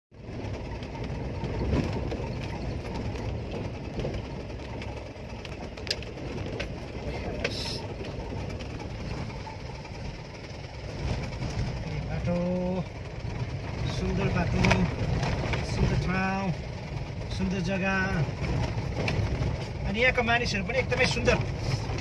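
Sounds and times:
vehicle rumble on gravel road: 0.1 - 22.0
sharp clicks and knocks: 0.6 - 9.4.

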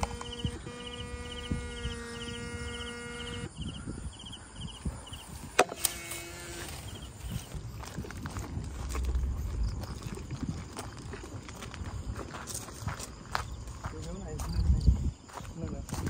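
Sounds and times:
electrical hum: 0.0 - 13.9
insects chirping: 0.0 - 16.0
footsteps in weeds: 5.3 - 16.0.

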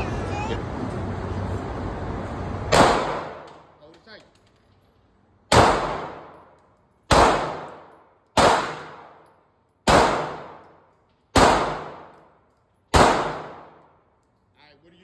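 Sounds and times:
pistol shots echoing indoors: 2.7 - 3.7, 5.4 - 14.5.

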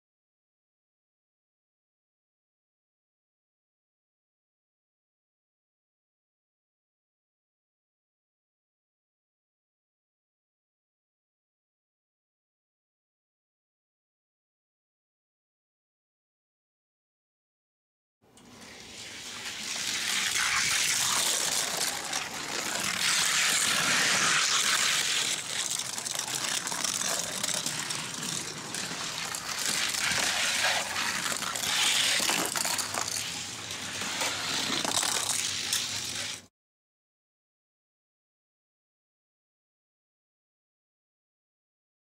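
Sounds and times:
toy cars rolling on track: 18.4 - 36.5.

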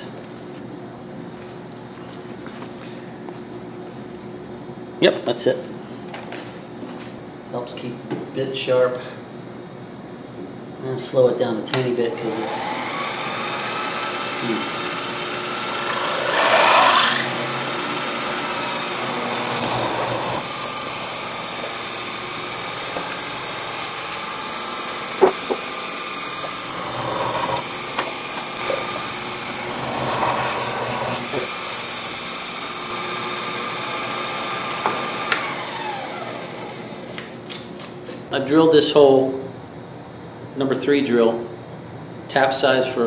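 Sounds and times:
milling machine motor running: 12.1 - 37.5
drill bit cutting metal: 12.2 - 37.2
short high squeal: 16.4 - 19.1.

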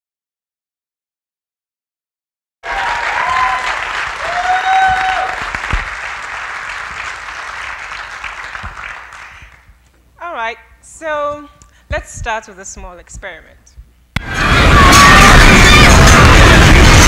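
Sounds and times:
whoops of cheering: 2.6 - 5.7, 14.2 - 17.0
audience applauding: 2.6 - 9.7, 14.2 - 17.0.

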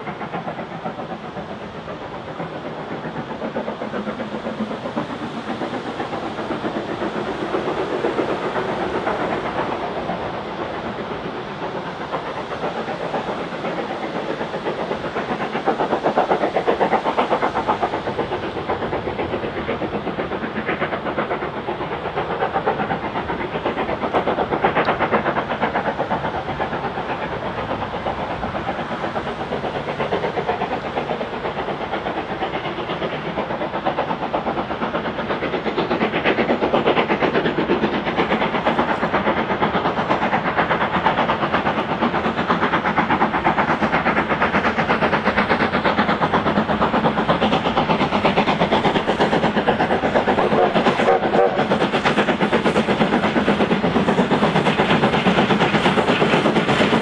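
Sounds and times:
steam hissing: 0.0 - 57.0
steam locomotive chuffing: 0.0 - 57.0.

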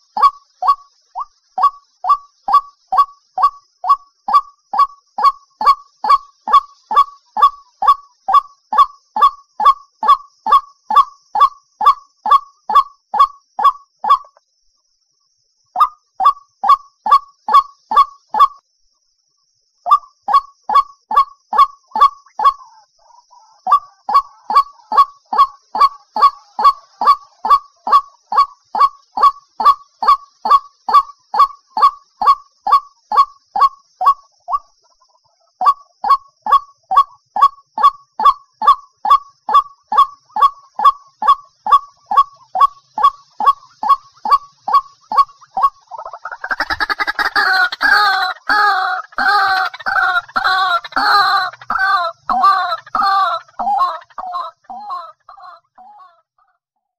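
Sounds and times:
waterhen honking calls: 39.5 - 56.1.

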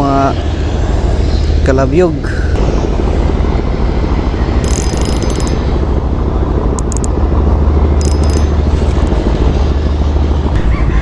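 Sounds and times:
low rumble: 2.3 - 10.9
fishing reel gears whirring: 4.6 - 5.7, 6.8 - 7.1, 8.0 - 8.6.

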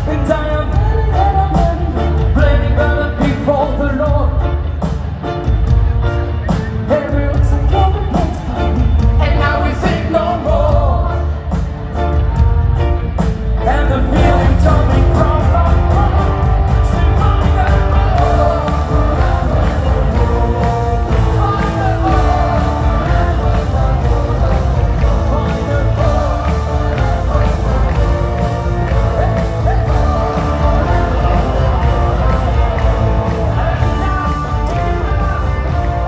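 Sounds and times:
person singing: 0.0 - 4.6, 13.6 - 36.0
live rock band playing: 0.0 - 36.0.

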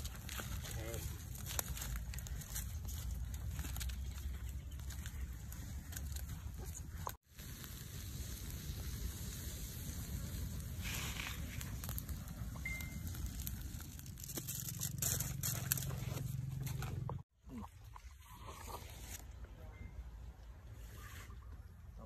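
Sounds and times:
campfire crackling and popping: 0.0 - 17.2.

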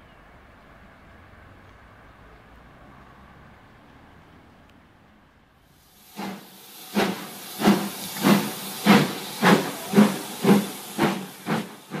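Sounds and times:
steam hiss: 5.6 - 12.0
steam locomotive chuffing: 5.7 - 12.0.

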